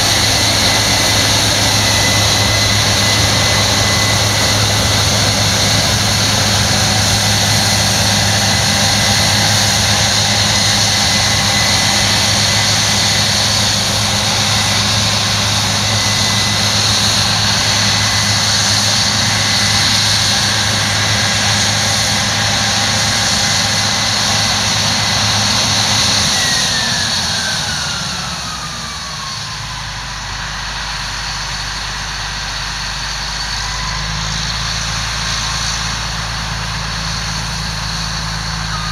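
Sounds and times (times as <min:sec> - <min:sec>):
combine harvester high whine: 0:00.0 - 0:38.9
low engine hum: 0:00.0 - 0:38.9.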